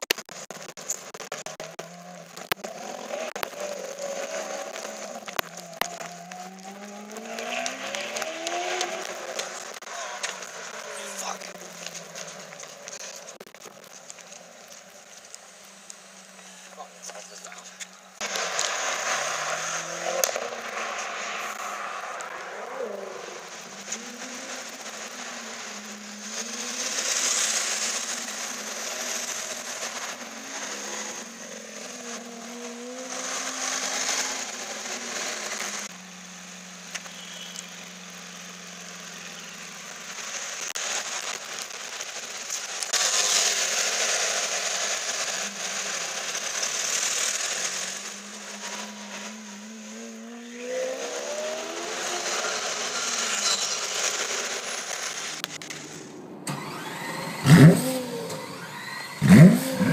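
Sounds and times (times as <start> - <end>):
car engine revving and accelerating: 1.0 - 14.8, 15.6 - 42.1, 42.7 - 59.9.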